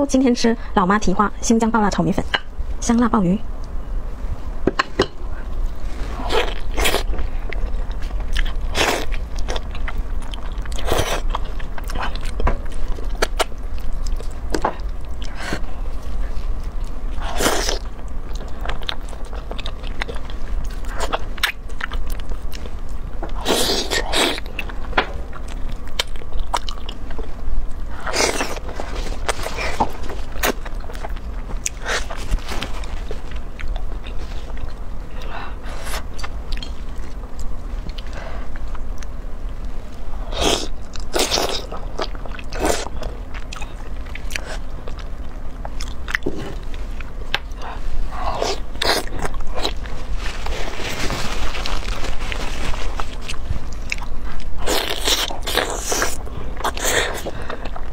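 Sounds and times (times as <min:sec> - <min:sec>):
steady low hum: 0:00.0 - 0:57.9
biting and chewing: 0:06.4 - 0:27.4.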